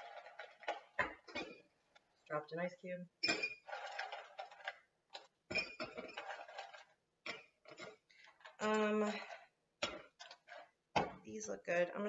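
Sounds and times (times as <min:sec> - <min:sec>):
ice cubes clinking in glasses: 0:03.3 - 0:08.0.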